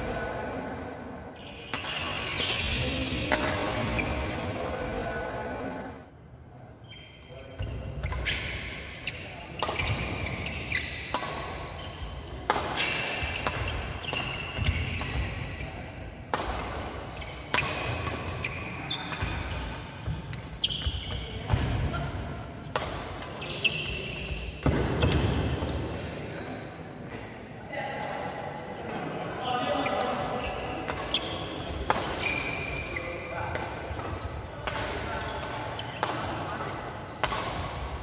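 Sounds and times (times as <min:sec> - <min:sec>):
rackets hitting shuttlecock: 0:01.5 - 0:04.2, 0:08.0 - 0:15.6, 0:16.2 - 0:19.7, 0:22.6 - 0:25.5, 0:30.0 - 0:38.0
shoes squeaking on wooden floor: 0:32.2 - 0:32.8.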